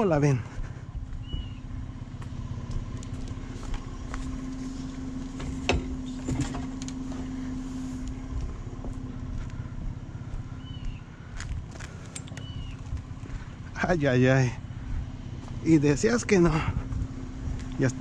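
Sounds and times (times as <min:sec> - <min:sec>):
pickup truck engine idling: 0:00.0 - 0:18.0
light clunk: 0:05.3 - 0:07.3.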